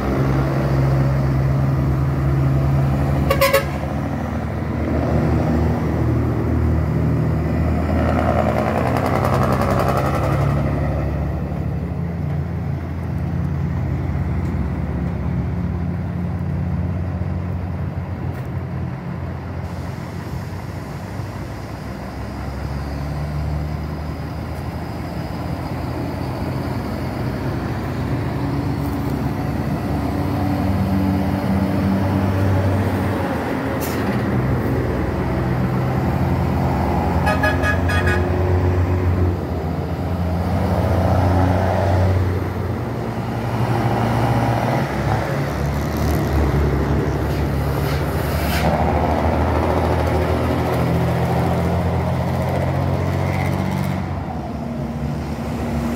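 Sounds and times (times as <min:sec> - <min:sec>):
trucks driving past: 0:00.0 - 0:55.9.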